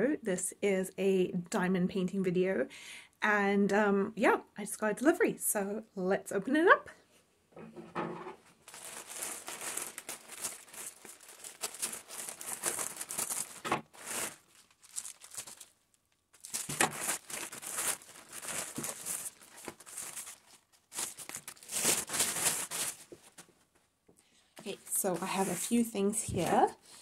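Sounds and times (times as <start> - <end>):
plastic bag crinkling: 8.6 - 23.5.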